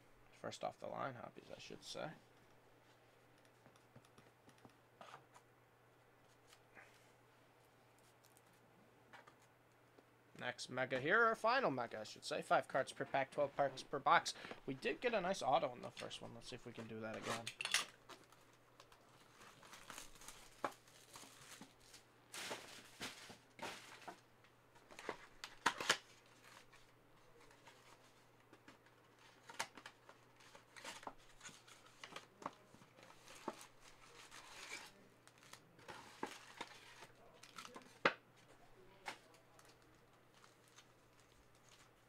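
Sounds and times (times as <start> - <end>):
cards clicking and tapping: 3.3 - 4.8
foil wrappers crinkling and tearing: 18.1 - 24.0, 29.3 - 38.0, 39.2 - 42.0.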